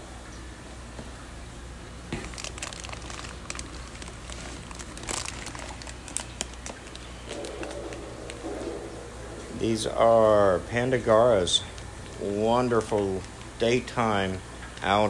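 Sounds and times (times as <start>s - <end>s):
steady low hum: 0.0s - 15.0s
plastic bags crinkling: 2.1s - 9.0s, 11.0s - 15.0s.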